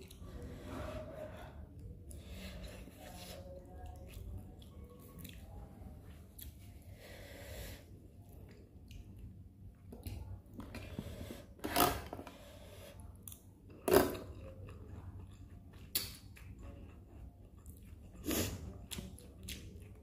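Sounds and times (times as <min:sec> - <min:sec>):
chewing corn: 0:01.8 - 0:06.7, 0:13.2 - 0:20.0.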